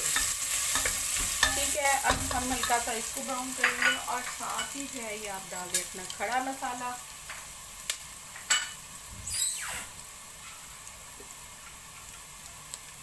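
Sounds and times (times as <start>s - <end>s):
onions sizzling in hot oil: 0.0s - 13.0s
wooden spatula knocking pot: 0.2s - 2.9s
spatula scraping squeal: 9.2s - 10.6s.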